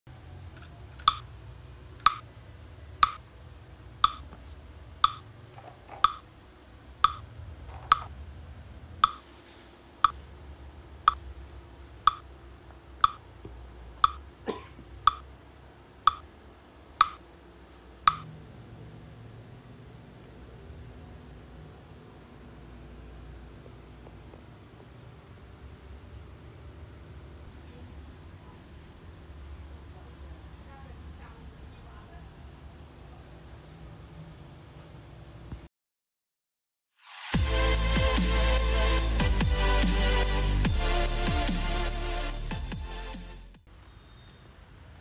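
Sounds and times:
sharp pitched tick: 1.0s - 1.2s, 2.0s - 2.2s, 4.0s - 4.2s, 5.0s - 5.2s, 6.0s - 6.2s, 7.0s - 7.2s, 9.0s - 9.2s, 13.0s - 13.2s, 14.0s - 14.2s, 17.0s - 17.2s, 18.1s - 18.3s.

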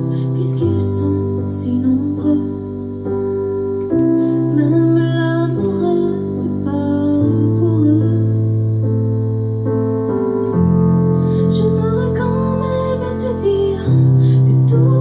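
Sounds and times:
woman singing ballad: 0.0s - 2.7s, 4.2s - 8.5s, 11.3s - 15.0s
piano chords: 0.0s - 15.0s.

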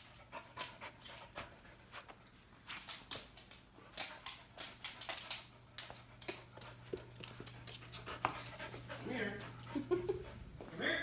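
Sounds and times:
dog claws clicking on wood floor: 2.6s - 10.5s.

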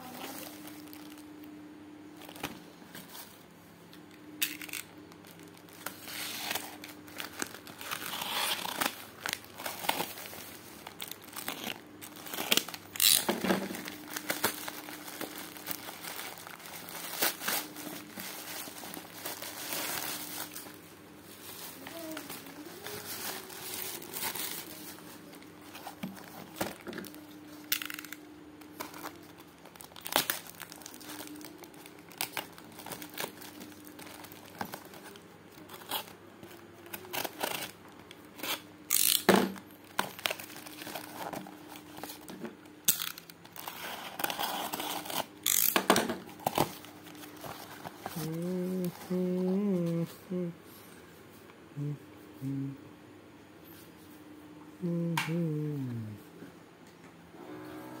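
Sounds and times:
plastic wrapping crinkling: 0.0s - 3.4s, 4.3s - 49.8s
faint low hum: 0.0s - 58.0s
packing tape slit and torn: 4.4s - 15.9s, 26.7s - 33.4s, 34.0s - 37.8s, 38.4s - 41.4s, 42.0s - 46.8s.

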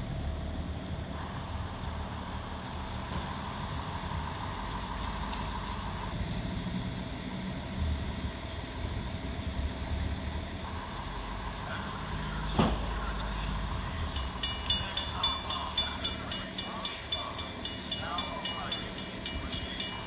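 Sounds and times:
low rumble of approaching train: 0.0s - 20.0s
railroad crossing bells ringing: 12.0s - 20.0s.

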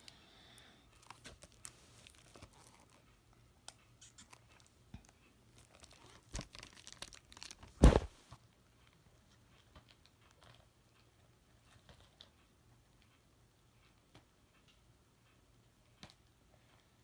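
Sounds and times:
shrink-wrap crinkling: 0.9s - 3.0s, 5.5s - 8.1s.

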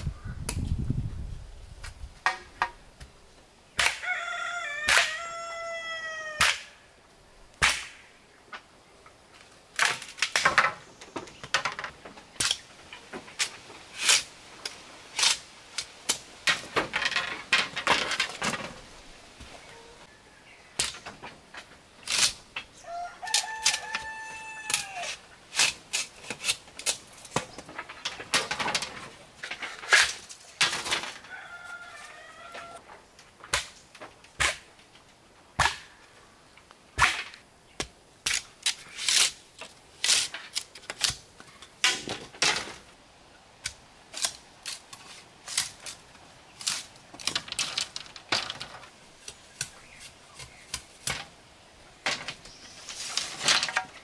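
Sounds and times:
rooster crowing: 4.0s - 6.6s, 22.8s - 25.2s, 31.2s - 32.8s.

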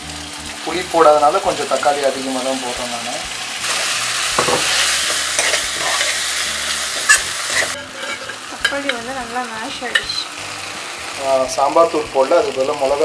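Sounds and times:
tomatoes sizzling in hot oil: 0.0s - 13.0s
steel spoon scraping pan: 3.6s - 8.8s.

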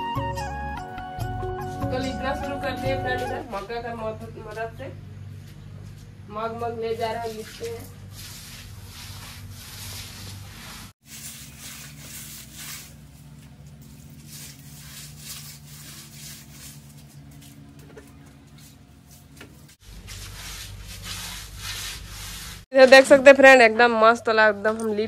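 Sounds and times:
hands rubbing paste on mud floor: 7.3s - 22.7s.

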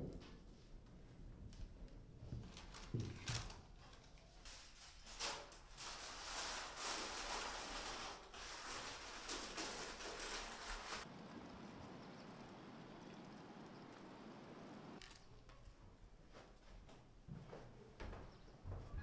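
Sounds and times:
rustling: 2.2s - 11.5s.

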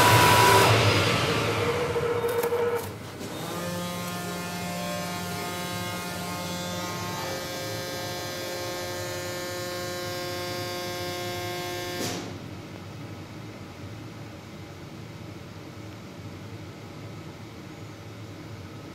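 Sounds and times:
cutting machine humming: 0.0s - 12.0s.

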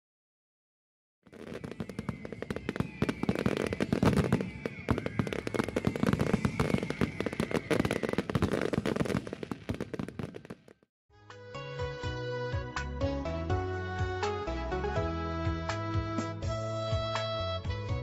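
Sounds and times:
fireworks crackling and banging: 1.3s - 10.9s
faint high whistle: 1.4s - 8.4s.

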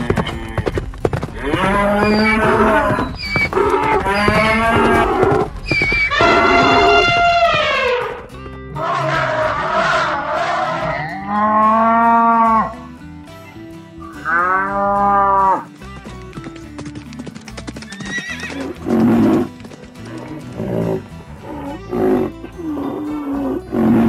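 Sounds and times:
cartoon cow mooing: 1.4s - 5.4s, 8.8s - 12.8s.

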